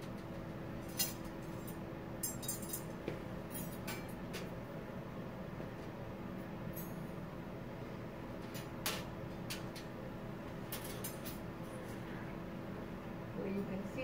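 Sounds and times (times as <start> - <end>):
steady low hum: 0.0 - 14.0
metal instruments clinking: 0.8 - 2.9.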